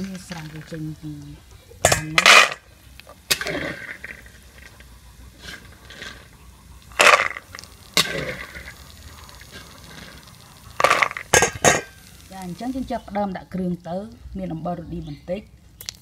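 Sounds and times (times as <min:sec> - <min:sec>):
peanuts dropping into steel bowl: 0:00.0 - 0:04.7, 0:05.7 - 0:08.8, 0:10.7 - 0:12.0.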